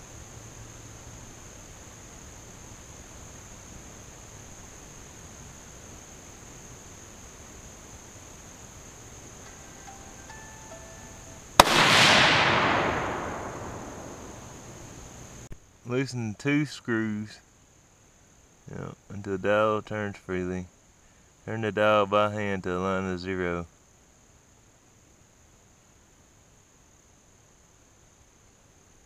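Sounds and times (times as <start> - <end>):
rifle shot echoing: 11.6 - 15.0.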